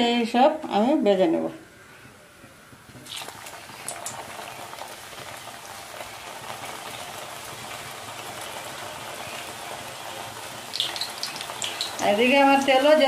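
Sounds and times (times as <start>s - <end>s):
dough sizzling in hot oil: 3.0s - 13.0s.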